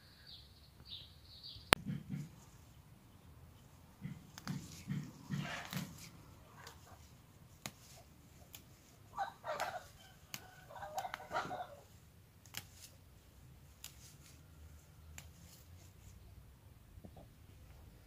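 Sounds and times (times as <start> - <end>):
mint stems snapping: 4.0 - 13.0, 13.6 - 14.4, 15.0 - 15.7.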